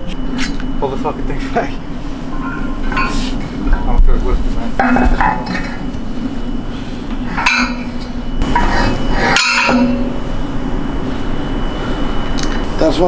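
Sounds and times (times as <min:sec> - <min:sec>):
metal weight plates clinking: 0:02.3 - 0:06.0, 0:07.2 - 0:10.3.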